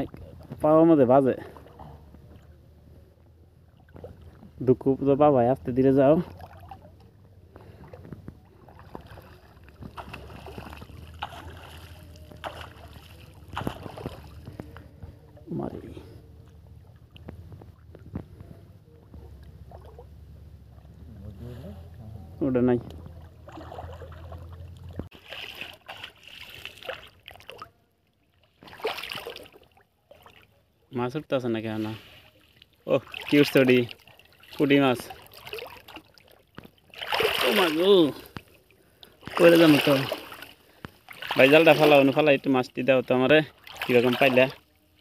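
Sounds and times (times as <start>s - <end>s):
water sloshing around wading person: 0.0s - 4.8s, 6.0s - 45.0s
low steady hum: 0.1s - 25.1s
sharp water splash: 8.7s - 14.4s, 23.0s - 27.7s, 28.6s - 30.5s, 32.9s - 38.4s, 39.2s - 42.3s, 43.5s - 44.6s.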